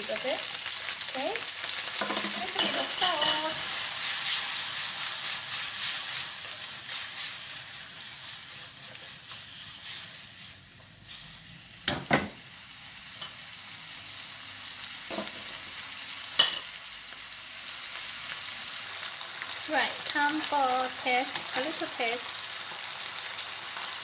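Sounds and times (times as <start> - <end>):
stir-fry sizzling in a frying pan: 0.0 - 24.0.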